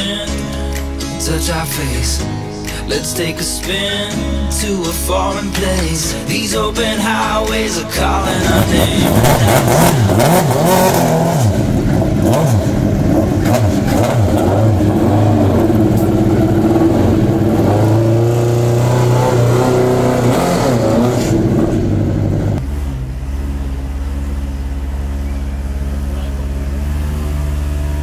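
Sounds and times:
race car engine revving: 0.0s - 28.0s
race car engine idling: 4.6s - 19.0s, 20.8s - 28.0s.

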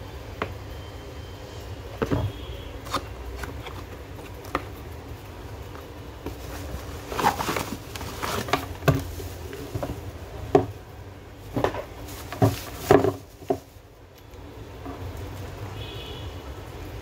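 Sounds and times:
cardboard and plastic bag handling: 5.8s - 13.9s.

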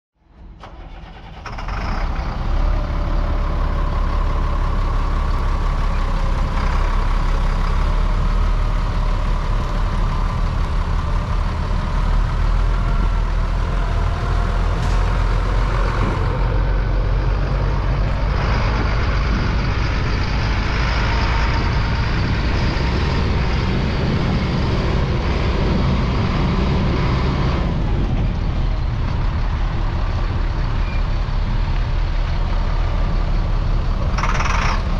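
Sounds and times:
truck engine idling: 0.3s - 34.9s.

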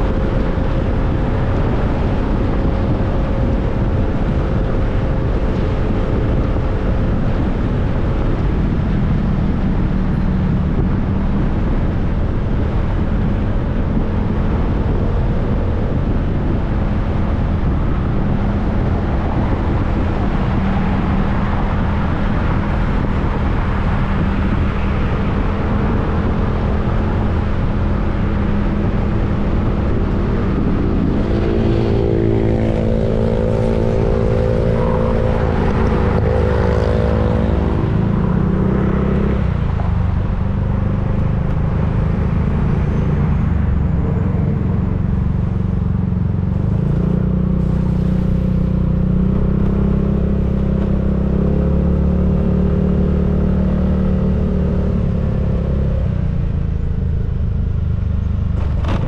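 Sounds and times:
motorcycle engine humming: 0.0s - 59.0s
wind and road noise: 0.0s - 59.0s.

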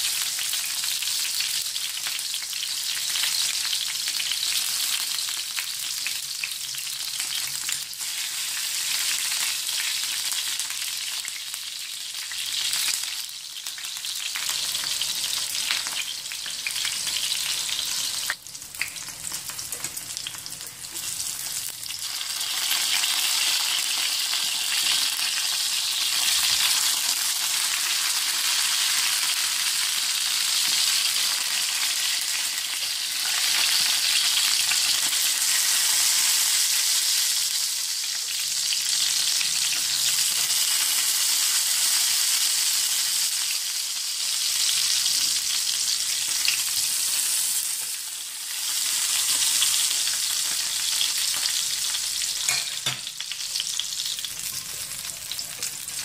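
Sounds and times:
oil sizzling in a pan: 0.0s - 56.0s.

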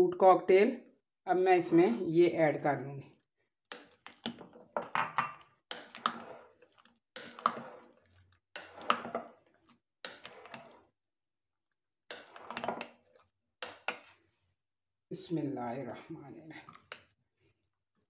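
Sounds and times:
spoon scraping wet salad: 3.1s - 4.8s, 5.7s - 11.0s, 12.1s - 14.5s, 16.6s - 17.1s.

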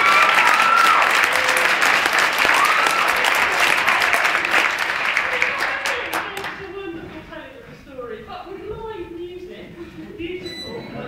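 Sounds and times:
short cheering calls: 0.0s - 6.2s
audience applauding: 0.0s - 6.7s.

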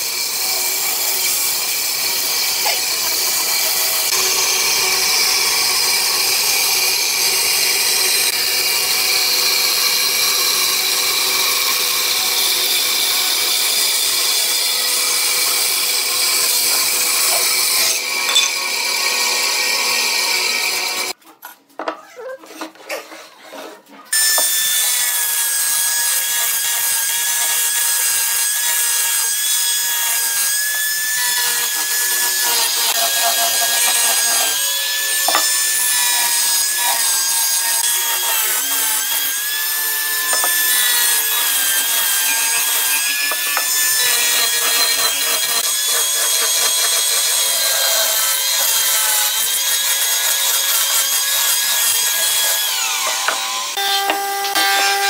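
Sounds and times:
angle grinder motor whine: 31.3s - 36.8s, 50.6s - 55.0s
abrasive sanding wood: 31.5s - 55.0s.

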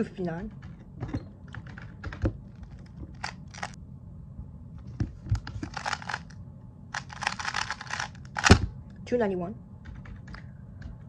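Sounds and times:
puzzle cube clicking turns: 1.5s - 3.8s, 5.4s - 6.3s, 6.9s - 8.6s.

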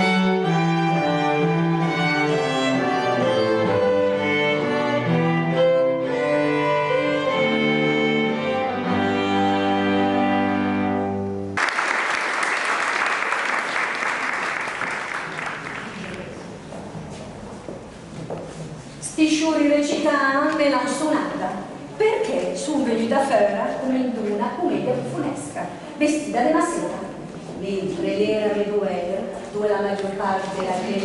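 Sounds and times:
string trio playing: 0.0s - 11.6s
audience applause: 11.6s - 16.4s.

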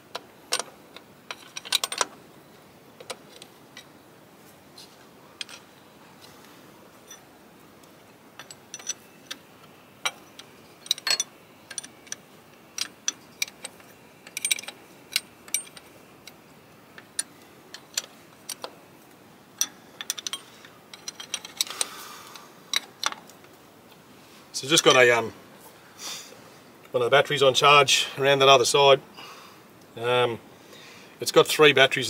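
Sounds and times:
steel spanner clinking: 8.4s - 9.4s, 10.0s - 12.2s, 12.8s - 16.4s, 19.6s - 21.8s.

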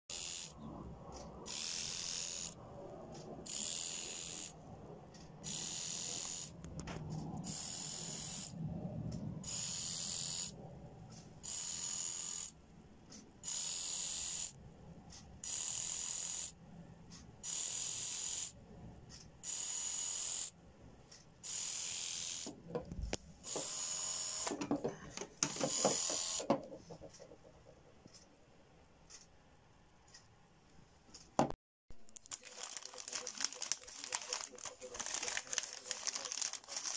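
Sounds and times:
small electric motor whirring: 0.1s - 0.6s, 1.5s - 2.6s, 3.5s - 4.6s, 5.4s - 6.6s, 7.4s - 8.5s, 9.4s - 10.6s, 11.4s - 12.5s, 13.4s - 14.6s, 15.4s - 16.5s, 17.5s - 18.5s, 21.5s - 22.5s, 23.5s - 24.6s, 25.5s - 26.5s.

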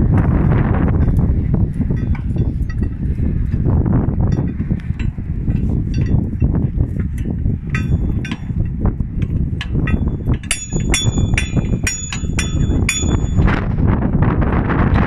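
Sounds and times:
wind rumble on microphone: 0.0s - 15.0s
metal-on-metal strikes ringing: 4.3s - 6.6s, 7.2s - 13.7s.

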